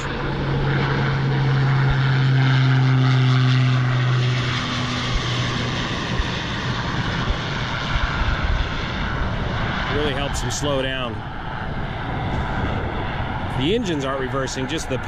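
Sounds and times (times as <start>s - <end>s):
propeller roar: 0.0s - 15.0s.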